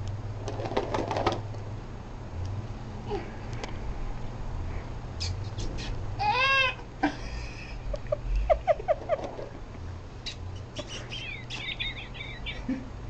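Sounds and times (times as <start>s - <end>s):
baby squealing: 6.2s - 6.8s
baby whining: 6.2s - 6.8s.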